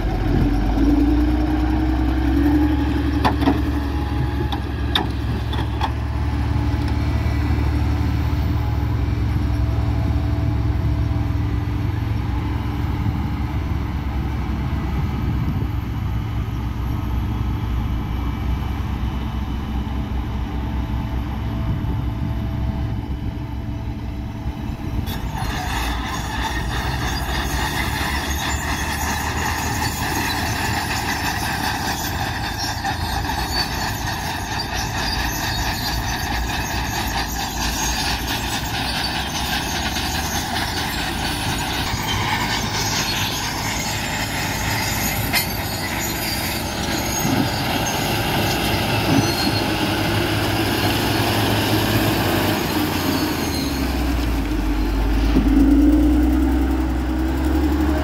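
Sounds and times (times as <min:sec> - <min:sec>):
heavy machinery diesel rumble: 0:00.0 - 0:58.0
high-pitched squealing and scraping: 0:25.0 - 0:58.0.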